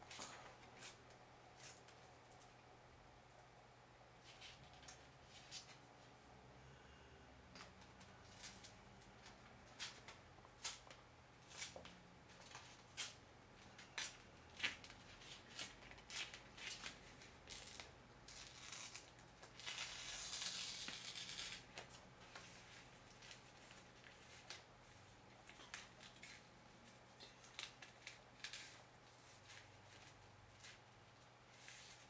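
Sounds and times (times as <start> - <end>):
plastic film crinkling: 8.0 - 32.0
film peeling off backing: 13.8 - 22.0.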